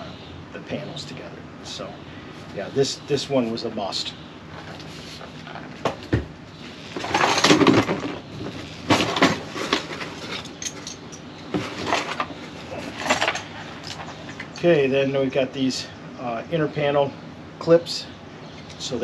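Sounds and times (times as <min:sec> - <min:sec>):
tools rustling and clattering in box: 0:06.6 - 0:14.5.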